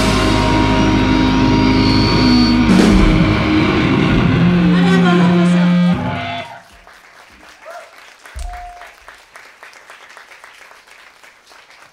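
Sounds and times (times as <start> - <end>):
rock band closing chord: 0.0 - 6.6
audience applause: 5.9 - 11.9.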